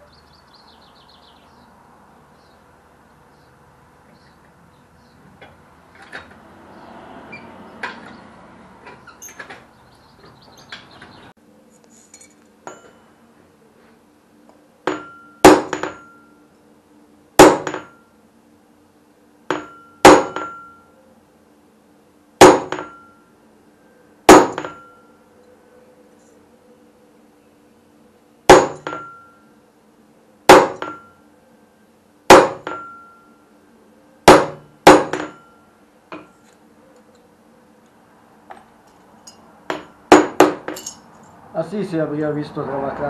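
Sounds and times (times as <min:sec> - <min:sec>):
hammer striking steel punch: 0:14.9 - 0:16.2, 0:17.4 - 0:18.0, 0:19.5 - 0:20.8, 0:22.4 - 0:23.1, 0:24.3 - 0:25.0, 0:28.5 - 0:29.3, 0:30.5 - 0:31.1, 0:32.3 - 0:33.2, 0:34.3 - 0:35.5, 0:39.7 - 0:41.0.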